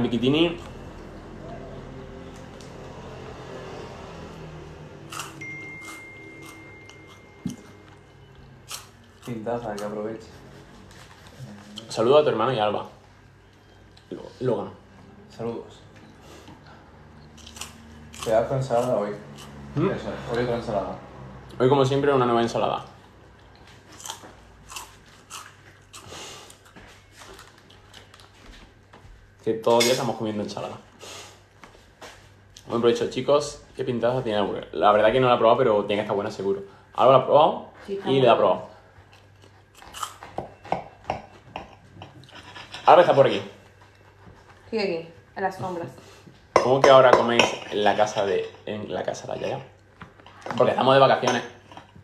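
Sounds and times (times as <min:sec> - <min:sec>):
low room hum: 0:00.0 - 0:52.0
person chewing: 0:05.1 - 0:10.0, 0:16.4 - 0:19.7, 0:23.4 - 0:28.4, 0:39.0 - 0:40.4
faint high tone: 0:05.4 - 0:08.6.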